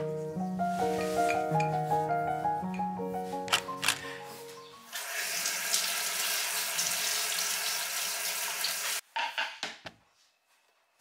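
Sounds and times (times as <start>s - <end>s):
kitchen tap running: 5.0s - 9.0s.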